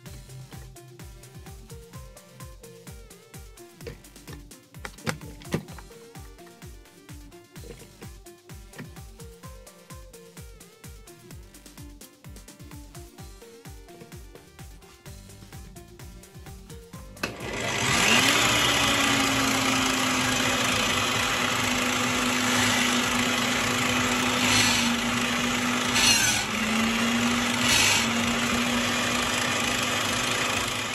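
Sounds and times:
drill bit boring into wood: 17.2s - 30.9s
drill press motor humming: 17.2s - 30.9s.

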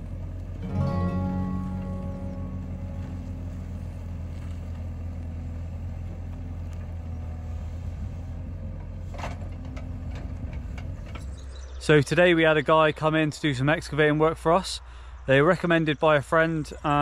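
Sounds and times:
excavator diesel engine rumbling: 0.0s - 15.1s.

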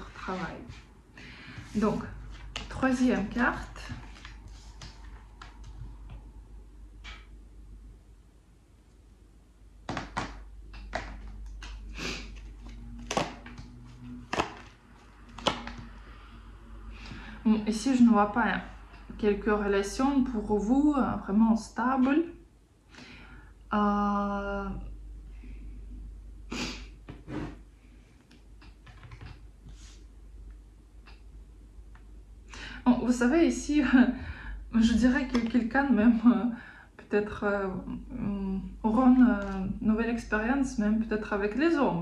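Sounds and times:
cards tapping and knocking: 9.9s - 11.3s, 14.3s - 14.7s, 15.3s - 15.9s.

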